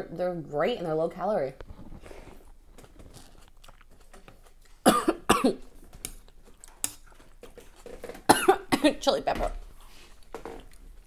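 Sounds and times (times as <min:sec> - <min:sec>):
woman coughing: 0:04.8 - 0:05.6, 0:08.3 - 0:09.0.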